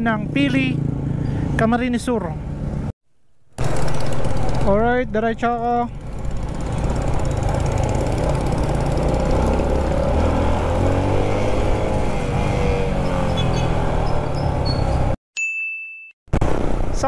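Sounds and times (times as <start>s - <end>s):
motorcycle engine running: 3.6s - 15.2s.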